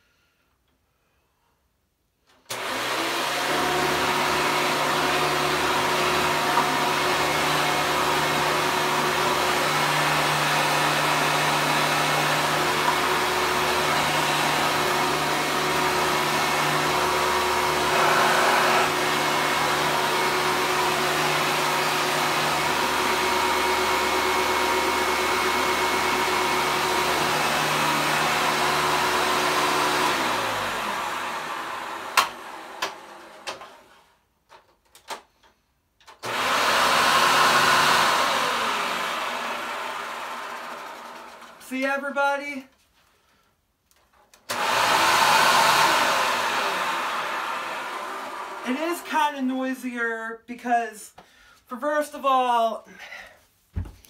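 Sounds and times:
motor winding down: 2.5s - 33.1s, 44.5s - 48.7s
vacuum cleaner running: 2.5s - 34.0s, 36.2s - 41.6s, 44.5s - 49.4s.

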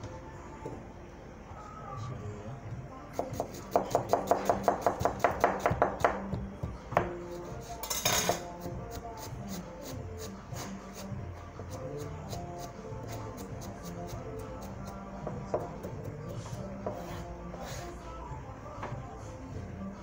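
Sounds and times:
knives chopping vegetables: 3.2s - 7.4s.

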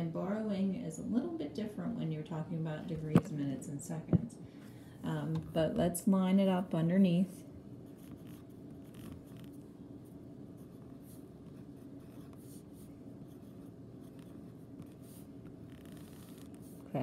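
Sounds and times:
low steady hum: 0.0s - 17.0s
pen scratching on paper: 7.9s - 9.6s, 10.6s - 17.0s.

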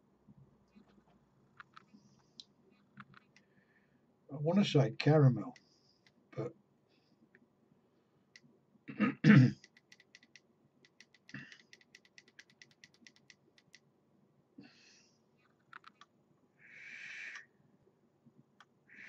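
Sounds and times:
man coughing: 8.9s - 9.6s.

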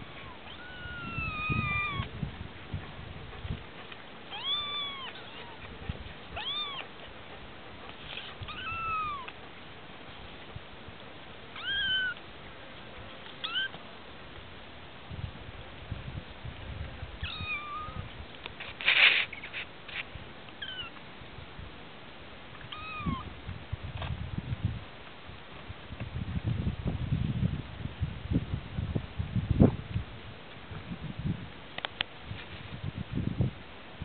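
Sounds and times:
kittens mewing: 6.4s - 6.9s, 8.4s - 9.3s.

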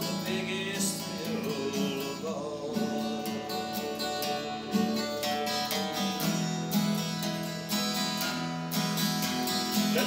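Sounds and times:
acoustic guitar strumming: 0.0s - 10.0s.

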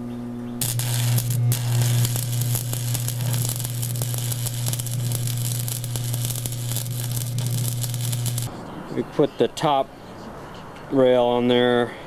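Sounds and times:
low hum: 0.6s - 8.5s
welding arc crackling: 0.6s - 8.5s.

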